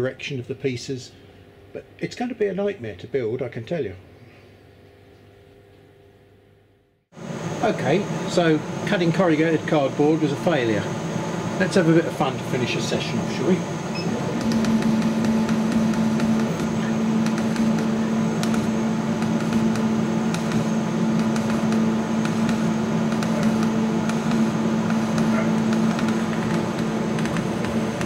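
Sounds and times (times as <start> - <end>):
low fan tone: 0.0 - 28.0
laser cutter mechanical hum: 7.2 - 28.0.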